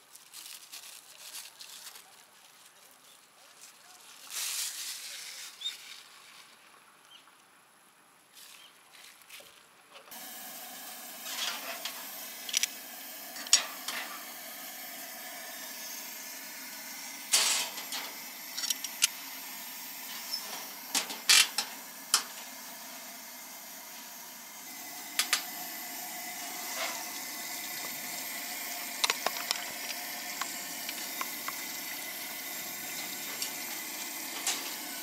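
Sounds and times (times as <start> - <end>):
gas stove burner hissing: 10.1 - 35.0.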